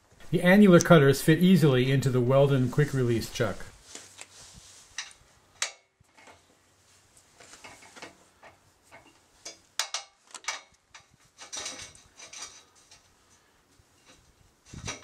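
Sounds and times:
metallic clicks and knocks: 7.4s - 13.1s.

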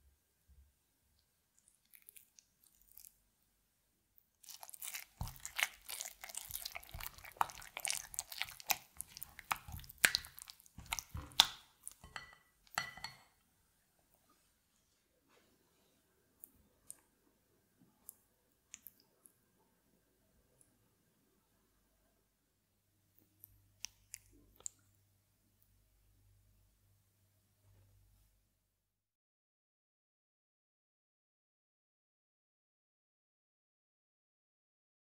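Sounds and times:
spatula stirring yogurt: 4.4s - 13.4s.

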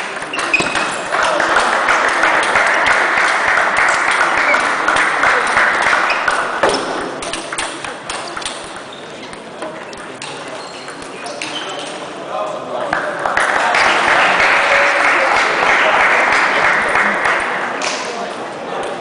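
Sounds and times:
loud background din: 0.0s - 19.0s
table tennis ball clicking: 6.2s - 11.9s.

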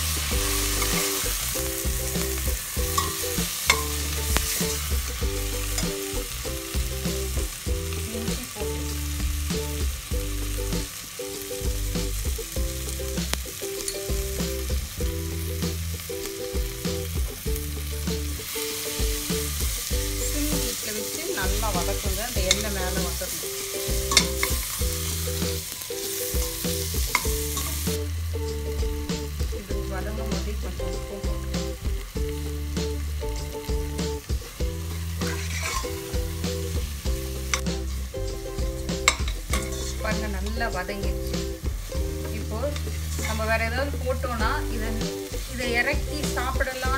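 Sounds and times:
vegetables sizzling in hot oil: 0.0s - 46.9s
metal spoon scraping pot: 2.9s - 4.9s, 24.1s - 24.8s, 27.1s - 27.9s, 35.2s - 36.1s, 39.0s - 40.0s.

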